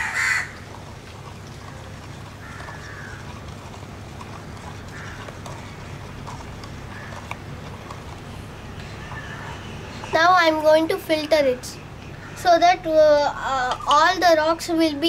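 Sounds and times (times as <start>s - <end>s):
stick stirring wet soil: 0.1s - 10.5s.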